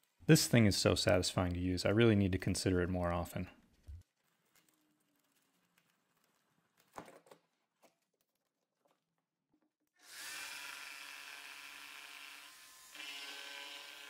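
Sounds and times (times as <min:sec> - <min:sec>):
electric jigsaw cutting wood: 0:10.0 - 0:14.0.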